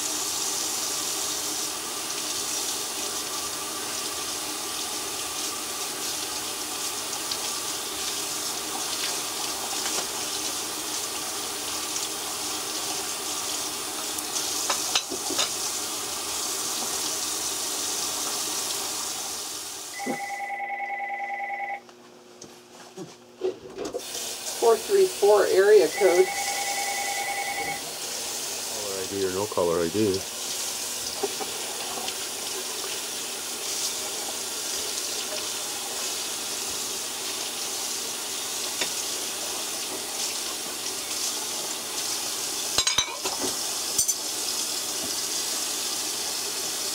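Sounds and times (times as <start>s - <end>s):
telephone ringing: 20.0s - 21.8s, 25.8s - 27.8s.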